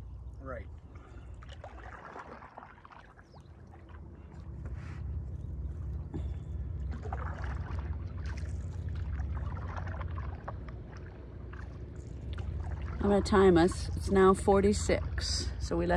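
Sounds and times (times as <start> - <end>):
paddle splashes and drips: 0.1 - 14.2
low rumble: 3.6 - 15.9.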